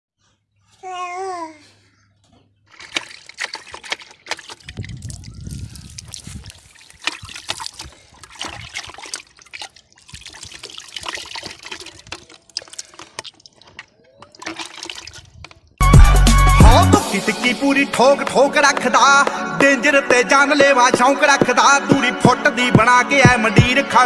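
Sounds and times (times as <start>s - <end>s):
child's voice: 0.8s - 1.8s
water splashing and trickling: 2.6s - 15.8s.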